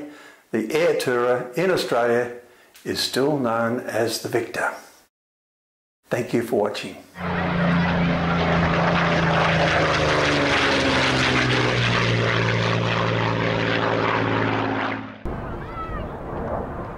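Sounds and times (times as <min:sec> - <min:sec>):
propeller aeroplane flying past: 0:07.2 - 0:16.9.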